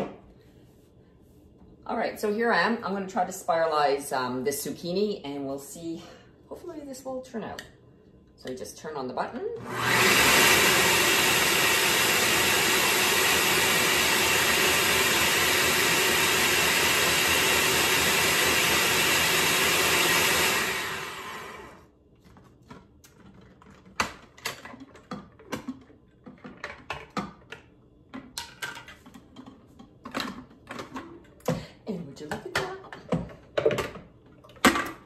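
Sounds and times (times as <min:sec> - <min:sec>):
spiralizer motor running: 0:09.6 - 0:21.8.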